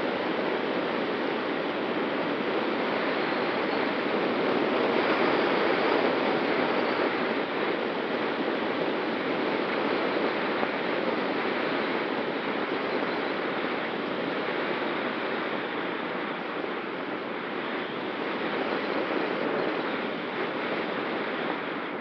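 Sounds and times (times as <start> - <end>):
rushing airflow over camera: 0.0 - 22.0.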